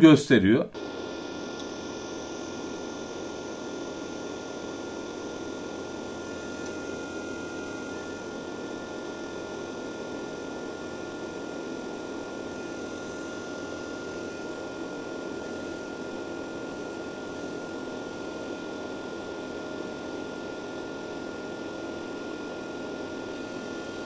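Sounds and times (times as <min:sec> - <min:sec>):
cooling fan whirring: 0:00.0 - 0:24.0
steady high whine: 0:00.0 - 0:24.0.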